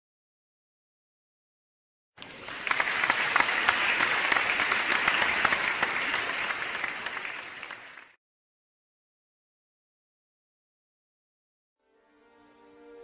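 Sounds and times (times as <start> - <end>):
crowd applauding: 2.2 - 8.2.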